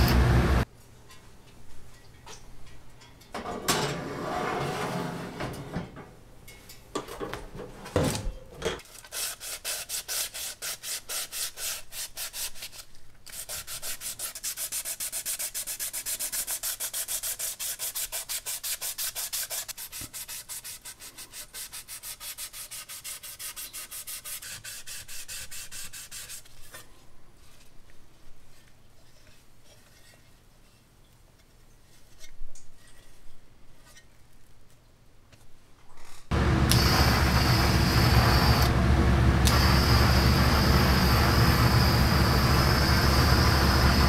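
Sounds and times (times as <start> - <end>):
wet sandpaper rasping: 9.0 - 26.8.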